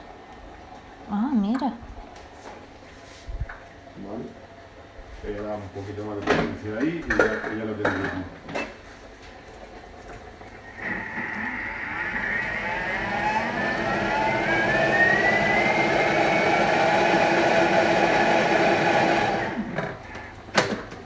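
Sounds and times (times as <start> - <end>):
food processor motor whine: 10.6 - 20.3.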